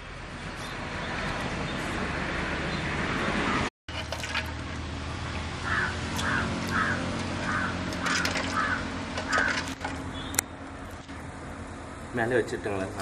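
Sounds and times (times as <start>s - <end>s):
bird cawing: 5.6s - 10.4s.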